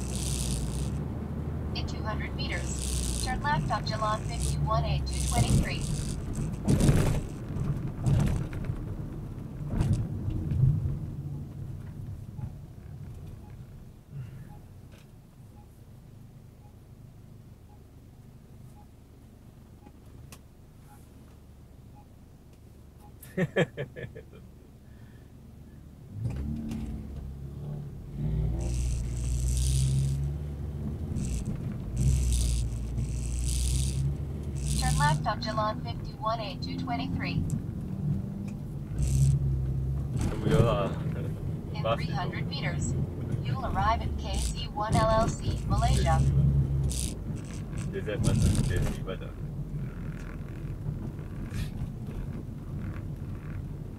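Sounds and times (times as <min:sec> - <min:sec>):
rattling: 0:00.0 - 0:01.0, 0:02.4 - 0:08.8, 0:28.5 - 0:35.3, 0:44.2 - 0:49.0
car interior road noise: 0:00.0 - 0:53.9
low engine rumble: 0:00.0 - 0:53.9.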